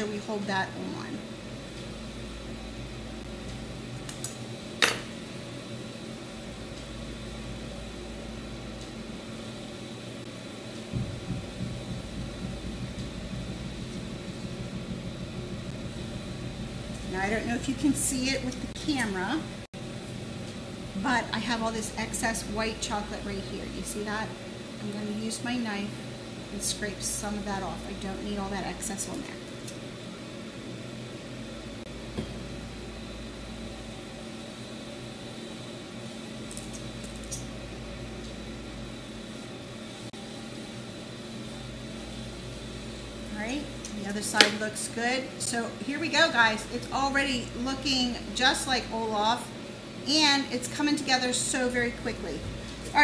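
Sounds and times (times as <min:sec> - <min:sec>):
low background hum: 0:00.0 - 0:53.0.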